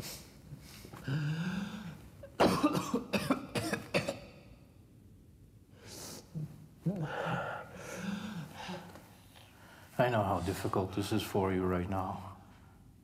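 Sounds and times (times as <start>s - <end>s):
man coughing hard: 2.4s - 4.5s.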